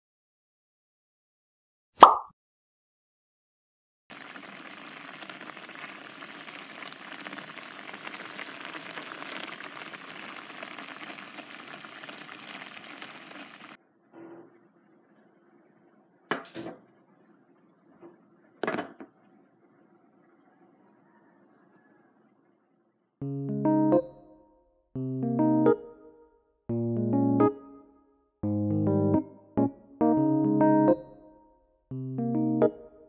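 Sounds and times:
rice sizzling in a pan: 0:04.1 - 0:13.8.

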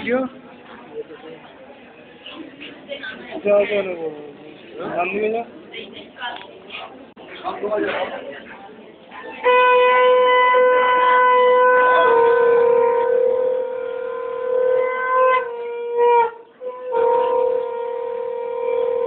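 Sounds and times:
conch shell blasts: 0:09.4 - 0:19.0.

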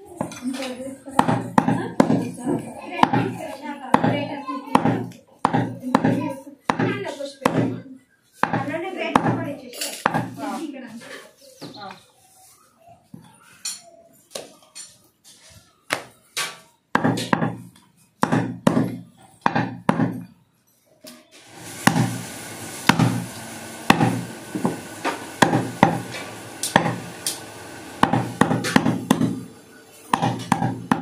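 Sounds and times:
cleaver chopping meat and bone: 0:01.2 - 0:07.8, 0:08.4 - 0:10.4, 0:17.0 - 0:20.2, 0:21.8 - 0:22.2, 0:22.8 - 0:27.4, 0:28.0 - 0:29.5, 0:30.1 - 0:31.0
steady hum: 0:21.4 - 0:31.0.

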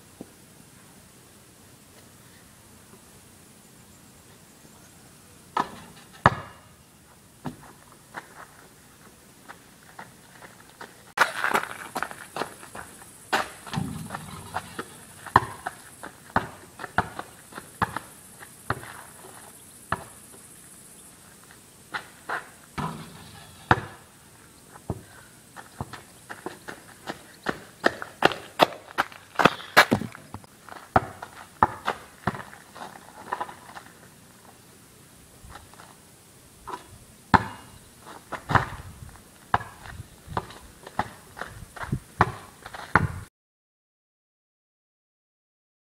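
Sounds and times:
basketball bouncing on concrete: 0:05.6 - 0:06.7, 0:13.4 - 0:18.1, 0:19.9 - 0:20.2, 0:22.8 - 0:24.1, 0:30.9 - 0:32.5, 0:37.3 - 0:37.7, 0:39.5 - 0:43.2
footsteps on pavement: 0:07.4 - 0:20.2, 0:24.7 - 0:34.0, 0:38.1 - 0:43.1.

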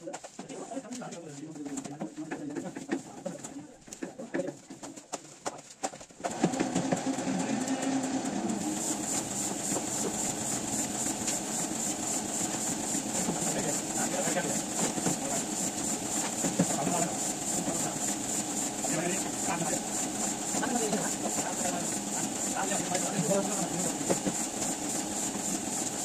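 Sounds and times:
printing press clattering: 0:00.1 - 0:26.0.

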